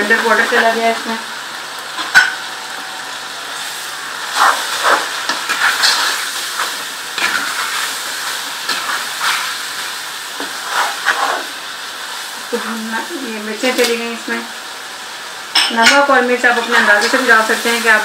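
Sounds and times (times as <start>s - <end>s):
chicken sizzling in hot oil: 0.0s - 18.0s
wooden spoon scraping a pan: 4.3s - 9.6s, 10.4s - 11.6s.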